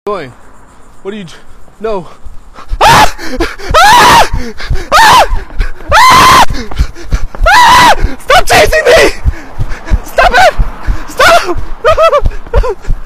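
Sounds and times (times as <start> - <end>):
man screaming: 2.8 - 6.8, 7.4 - 9.3, 9.9 - 12.8.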